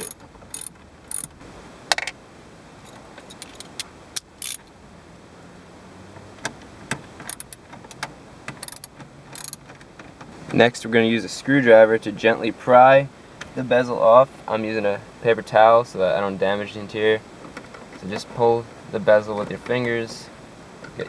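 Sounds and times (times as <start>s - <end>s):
socket ratchet clicking: 0.0s - 1.4s, 3.3s - 4.6s, 7.2s - 9.8s.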